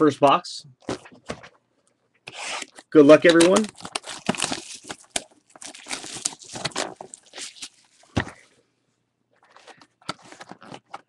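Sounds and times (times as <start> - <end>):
packaging crackling and tearing: 2.3 - 8.1.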